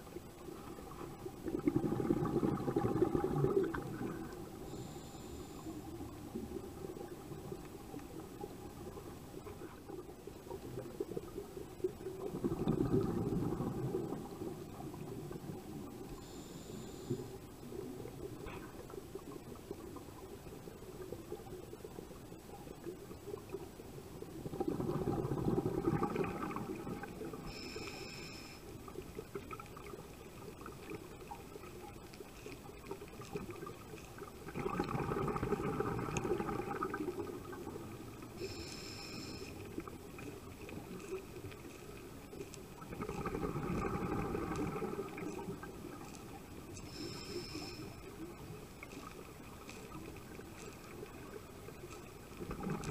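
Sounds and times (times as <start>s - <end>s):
bubbling exhalations underwater: 1.4s - 4.4s, 12.2s - 14.6s, 24.4s - 27.5s, 34.5s - 37.8s, 42.8s - 46.0s, 52.4s - 52.9s
hissing inhale through regulator: 3.1s - 6.2s, 16.0s - 17.5s, 27.0s - 29.0s, 38.2s - 39.9s, 46.7s - 48.4s.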